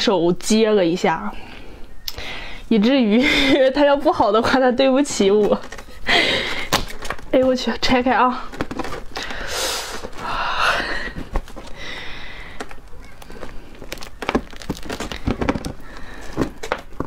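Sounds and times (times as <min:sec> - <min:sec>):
husk crackling and clicking: 0:05.1 - 0:17.0
fibrous rind tearing: 0:06.6 - 0:07.4, 0:12.4 - 0:17.0.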